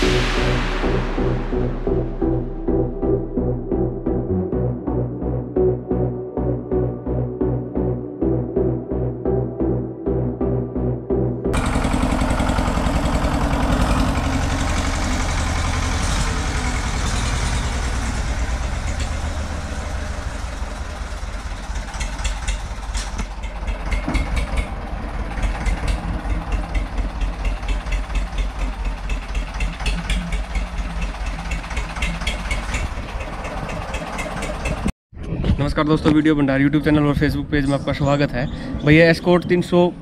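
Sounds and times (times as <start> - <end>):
tractor diesel engine idling: 11.5 - 34.9.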